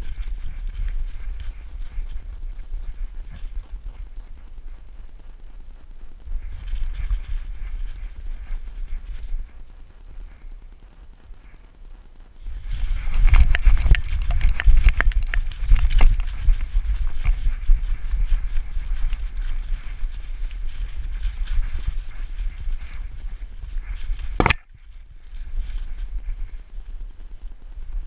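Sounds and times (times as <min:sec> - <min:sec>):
camera jostling rumble: 0:00.0 - 0:28.0
leaves crunching under paws: 0:12.4 - 0:26.6.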